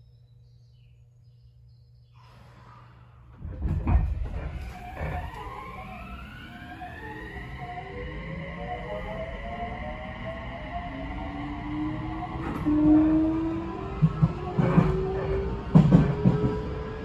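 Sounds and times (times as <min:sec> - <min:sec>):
train clunk and rumble: 0:03.4 - 0:06.8, 0:12.2 - 0:17.0
traction motors whining: 0:04.1 - 0:17.0.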